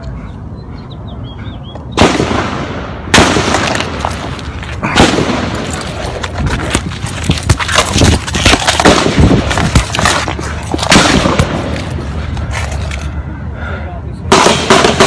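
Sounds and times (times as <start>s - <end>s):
gunshots with long echo: 2.0s - 5.8s, 8.4s - 9.7s, 10.8s - 11.8s, 14.3s - 15.0s.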